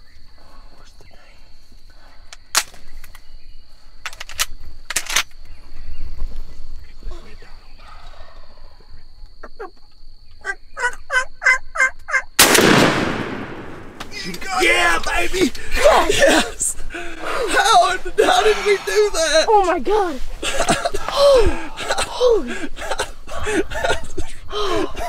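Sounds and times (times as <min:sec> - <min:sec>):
high insect drone: 0:00.0 - 0:12.4, 0:13.2 - 0:25.0
wild turkey calling: 0:07.6 - 0:12.4
sharp clicks: 0:12.4 - 0:14.4
shotgun blast: 0:12.4 - 0:14.4.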